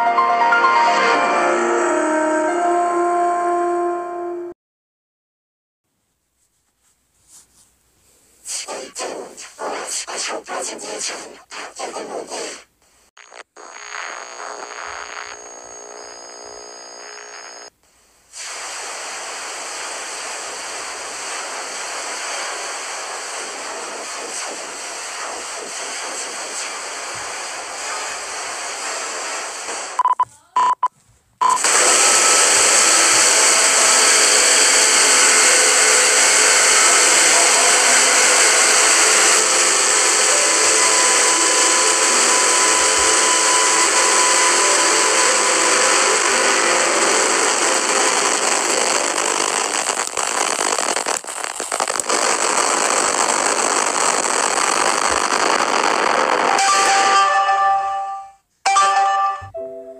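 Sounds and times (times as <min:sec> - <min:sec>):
harsh static with droning tones: 0:08.4 - 0:30.8, 0:31.4 - 0:58.0
hissing roar of noise: 0:18.3 - 0:30.0, 0:31.6 - 0:56.7
short beeps: 0:30.0 - 0:31.6.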